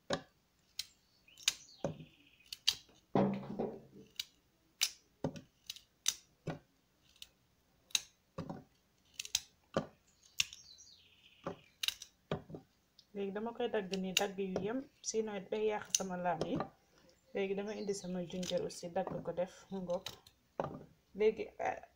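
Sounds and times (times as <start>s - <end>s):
faint bird chirp: 0.9s - 2.7s, 10.0s - 11.9s, 16.9s - 18.7s
carrot pieces clicking into plastic beaker: 9.1s - 10.6s, 11.4s - 12.1s.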